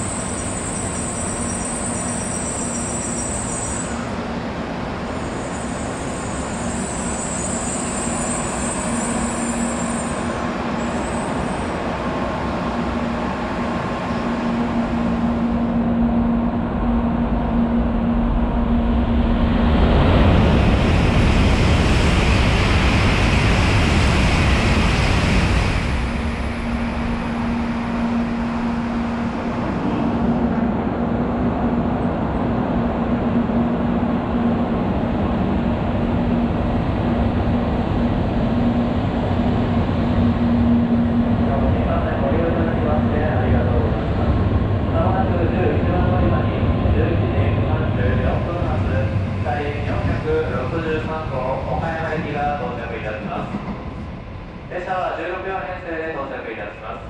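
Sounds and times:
train humming on tracks: 0:00.0 - 0:57.0
train rushing noise: 0:00.0 - 0:57.0.

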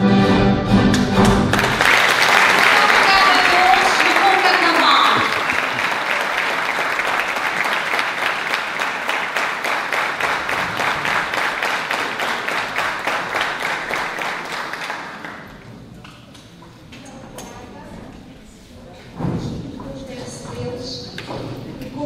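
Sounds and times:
audience applauding: 0:00.9 - 0:15.8.

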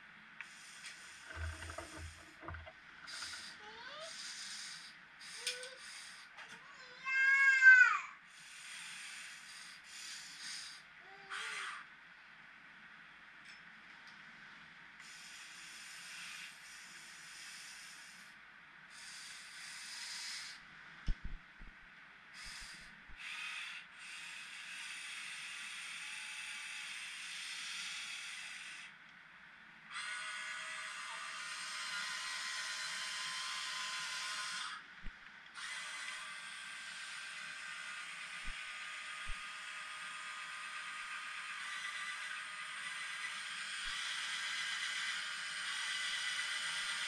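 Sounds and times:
strained motor whine: 0:00.4 - 0:06.0, 0:30.0 - 0:34.8, 0:35.5 - 0:47.0
electric motors whirring: 0:00.7 - 0:06.0, 0:29.9 - 0:34.8, 0:35.5 - 0:47.0.

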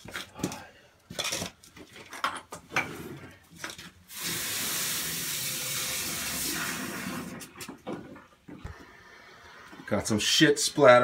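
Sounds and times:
running water: 0:04.1 - 0:07.4.

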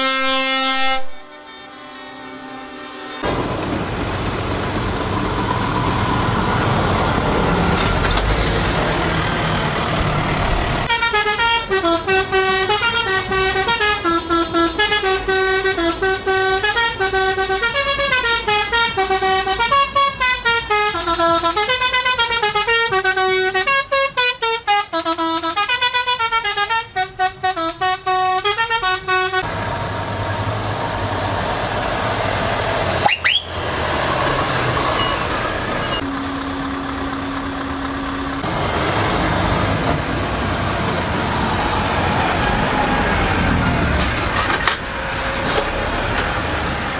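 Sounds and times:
musical air horn playing tune: 0:00.0 - 0:03.2, 0:10.9 - 0:29.5
truck diesel engines passing: 0:00.0 - 0:46.9
short rising whistle: 0:35.0 - 0:36.0.

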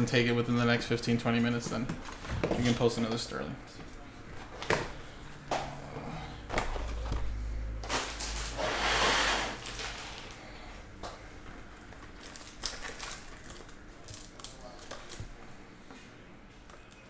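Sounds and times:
plastic wrap rustle: 0:07.8 - 0:10.5, 0:11.8 - 0:15.4.

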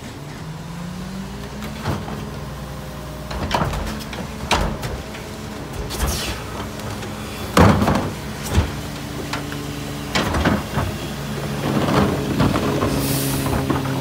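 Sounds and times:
garbage truck idling: 0:00.0 - 0:14.0
trash cart banging: 0:01.4 - 0:14.0
cart clattering: 0:03.2 - 0:14.0.

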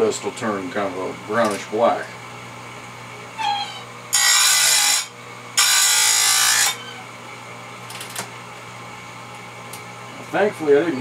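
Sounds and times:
grinder wheel grinding chain: 0:04.1 - 0:06.8.

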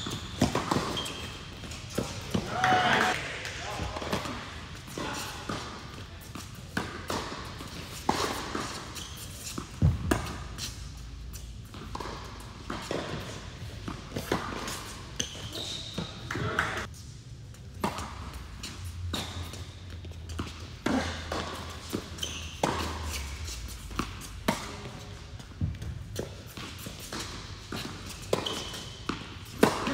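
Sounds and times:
ball bouncing on hard court: 0:00.0 - 0:10.8, 0:11.4 - 0:16.9, 0:19.0 - 0:23.2, 0:23.9 - 0:29.9
tennis racket striking ball: 0:00.4 - 0:03.2, 0:25.8 - 0:29.9.

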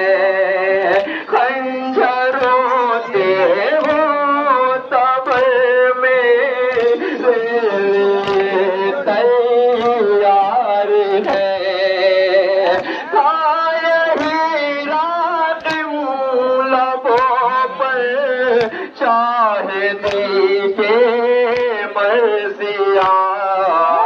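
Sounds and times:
man singing a lament: 0:00.0 - 0:24.0
rhythmic chest slaps: 0:00.0 - 0:24.0.

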